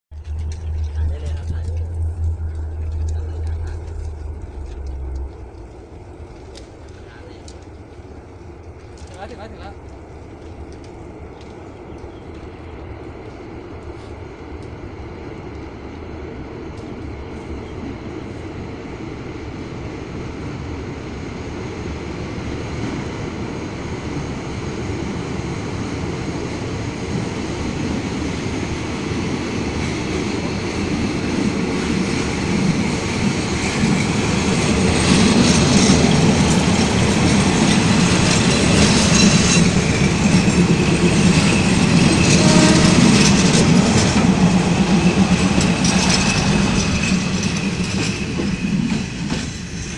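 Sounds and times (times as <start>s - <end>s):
wheels clattering on rails: 0.1s - 12.6s, 29.1s - 49.9s
diesel railcar engine rumble: 0.1s - 49.9s
wheels squealing on rails: 31.8s - 49.9s.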